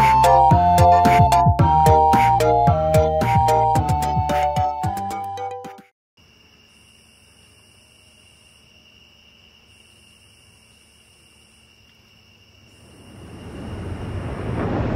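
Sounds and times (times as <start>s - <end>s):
crickets chirping: 6.2s - 14.9s
low rushing noise: 12.9s - 14.9s.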